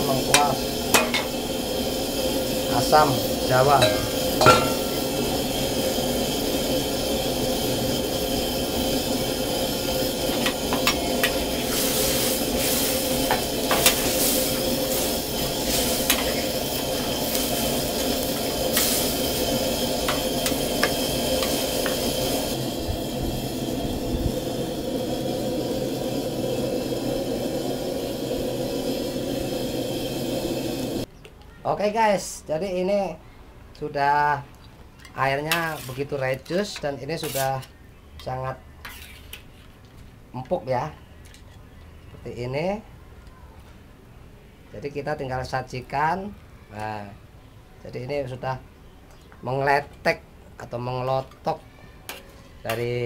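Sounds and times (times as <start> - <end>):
curry simmering hiss: 0.0 - 31.1, 35.1 - 39.8
tongs and ladle clicking on wok: 0.4 - 1.4, 15.7 - 22.4
metal clink: 3.8 - 5.2.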